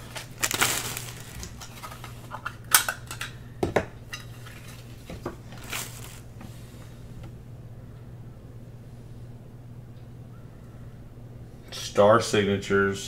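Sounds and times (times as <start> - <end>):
cards clicking and rustling: 0.0 - 3.4
steady low hum: 0.0 - 13.0.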